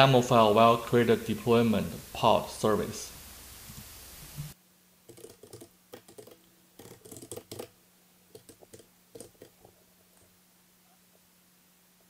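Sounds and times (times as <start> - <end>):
faint keyboard typing: 5.1 - 7.7, 8.3 - 10.3.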